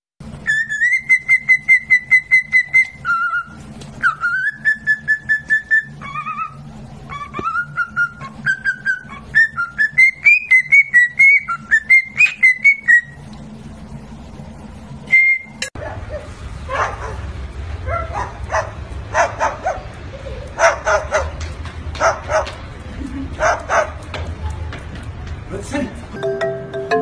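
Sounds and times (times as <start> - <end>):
cockatiel whistling a tune: 0.4 - 13.2, 15.1 - 15.7.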